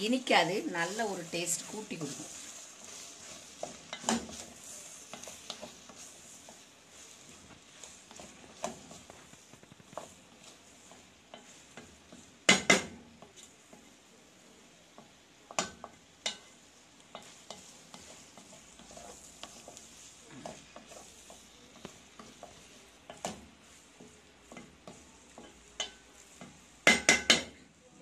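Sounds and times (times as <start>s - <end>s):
vegetables sizzling: 0.0s - 28.0s
wooden spatula stirring in pot: 0.0s - 28.0s
spatula knocking against pot: 26.8s - 27.6s.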